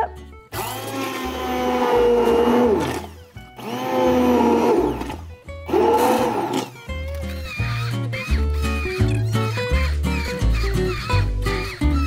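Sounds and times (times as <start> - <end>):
immersion blender whine: 0.5 - 6.7.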